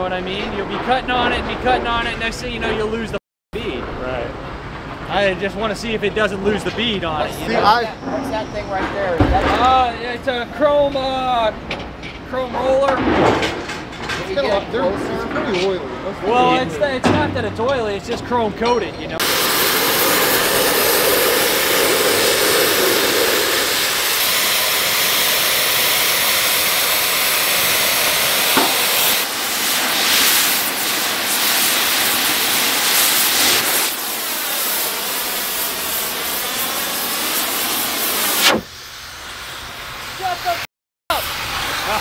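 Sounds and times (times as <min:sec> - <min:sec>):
cutting torch hissing: 0:19.2 - 0:42.0.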